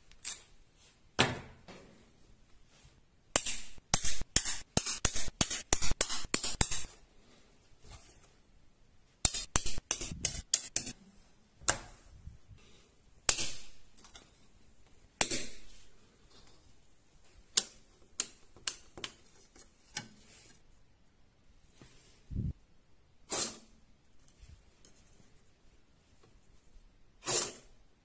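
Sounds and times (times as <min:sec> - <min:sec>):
magnets clicking onto steel plate: 0:09.2 - 0:11.0.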